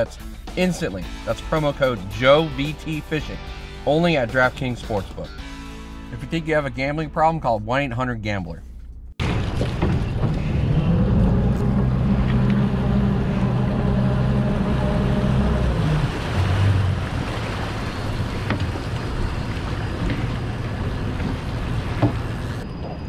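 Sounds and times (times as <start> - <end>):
wind: 6.1 - 23.0
outboard motors running: 9.2 - 23.0
water rushing: 9.2 - 23.0.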